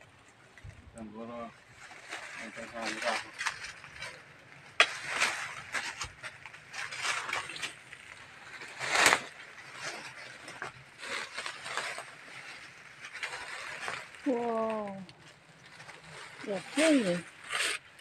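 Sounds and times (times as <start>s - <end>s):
dry leaves and brush rustling: 0.1s - 18.0s
swish of foliage: 4.8s - 17.9s.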